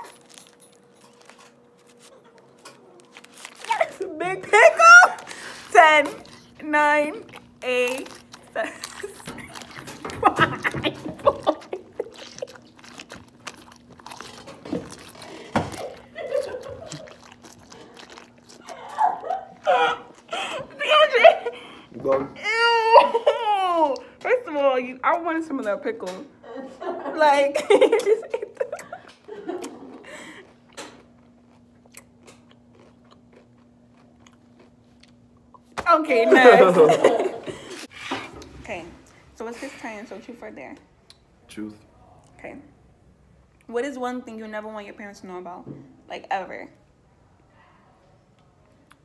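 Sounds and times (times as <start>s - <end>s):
wet crunching and chewing: 0.0s - 20.8s, 28.5s - 35.8s
faint steady hum: 0.0s - 49.0s
stifled laughter: 8.6s - 12.6s, 15.5s - 17.2s, 18.6s - 21.7s.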